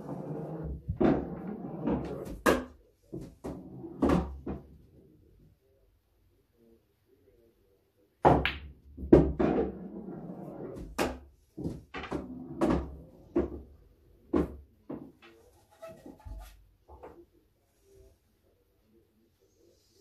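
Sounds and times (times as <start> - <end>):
balls rolling on cloth: 0.0 - 2.5.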